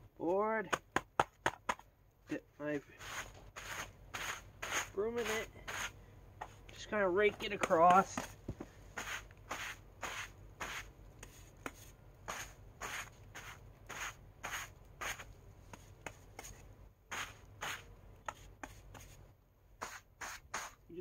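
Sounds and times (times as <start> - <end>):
broom brushing on fabric: 2.8 - 6.6, 8.9 - 19.2, 19.8 - 20.9.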